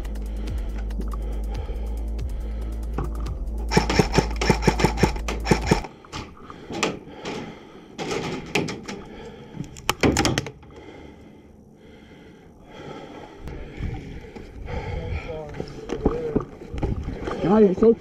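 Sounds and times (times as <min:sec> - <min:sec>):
wooden knocks and thuds: 0:09.9 - 0:10.6.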